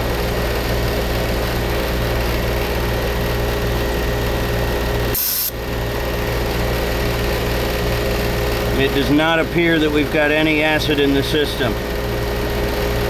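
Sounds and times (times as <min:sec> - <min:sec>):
air conditioning units humming: 0:00.0 - 0:13.0
sharp hiss of escaping gas: 0:05.2 - 0:05.5.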